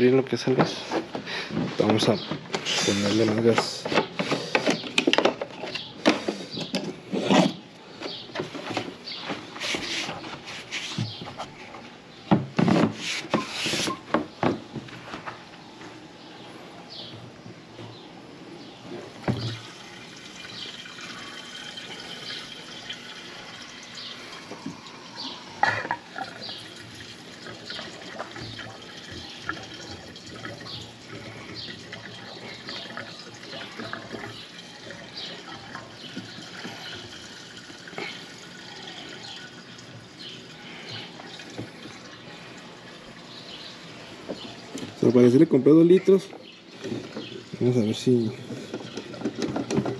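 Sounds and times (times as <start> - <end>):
gasoline pouring into fuel tank: 19.2 - 43.4.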